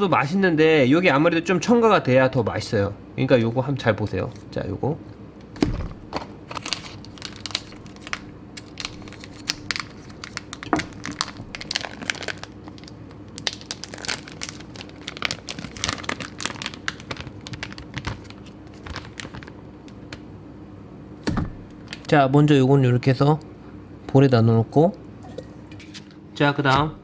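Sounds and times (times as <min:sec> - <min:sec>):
plastic bag crinkling: 0:06.5 - 0:20.0.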